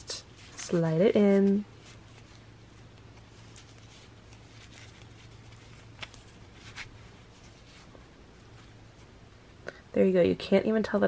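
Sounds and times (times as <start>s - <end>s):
low steady hum: 0.0s - 11.0s
cardboard rustling and scraping: 0.3s - 9.0s.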